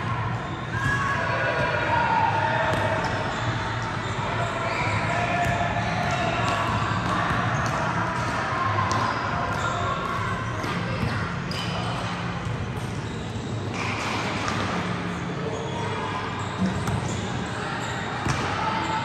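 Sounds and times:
sneakers squeaking: 0:00.2 - 0:19.0
basketballs bouncing on gym floor: 0:04.7 - 0:14.9, 0:18.2 - 0:18.6.

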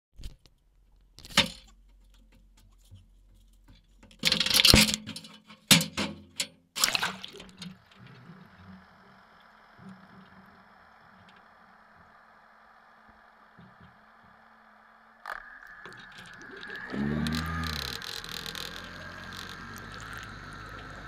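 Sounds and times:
water splashing: 0:06.8 - 0:10.5
boat engine running: 0:06.8 - 0:21.0.

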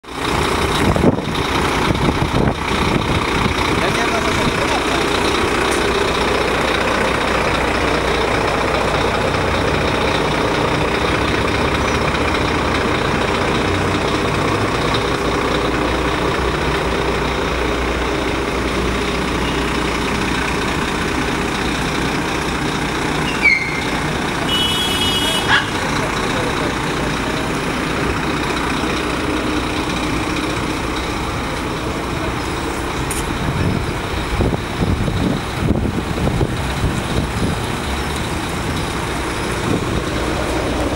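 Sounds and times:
diesel engine idling: 0:00.0 - 0:40.9
falling squeal: 0:23.2 - 0:24.0.

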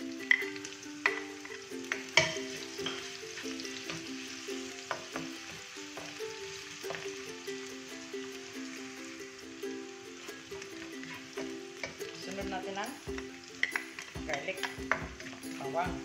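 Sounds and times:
onions sizzling in oil: 0:00.0 - 0:16.0
utensils knocking against pan: 0:01.0 - 0:04.1, 0:04.8 - 0:06.2, 0:11.0 - 0:16.0.

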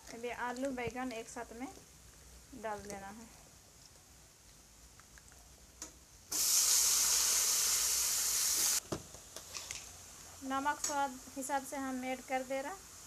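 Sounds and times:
vegetables sizzling in hot oil: 0:06.3 - 0:08.8, 0:09.7 - 0:13.0.

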